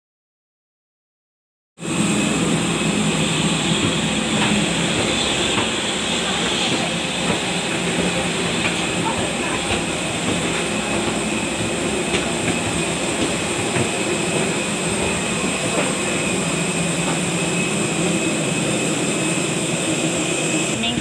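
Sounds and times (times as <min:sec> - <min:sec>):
high whine: 0:01.8 - 0:21.0
jet turbine drone: 0:01.8 - 0:21.0.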